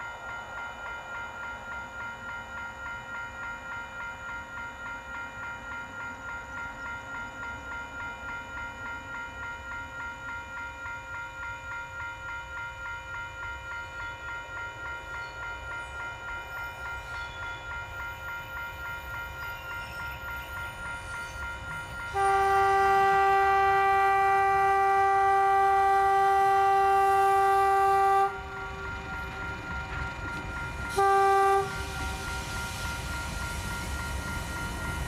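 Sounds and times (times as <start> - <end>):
diesel locomotive engine running: 18.6 - 35.0
locomotive horn blasts: 22.1 - 29.0, 30.9 - 32.2.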